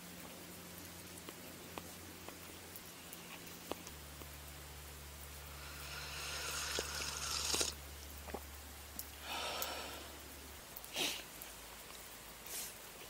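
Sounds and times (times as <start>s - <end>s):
noisy breaths through nose: 5.5s - 7.8s, 9.2s - 10.2s, 12.4s - 12.8s.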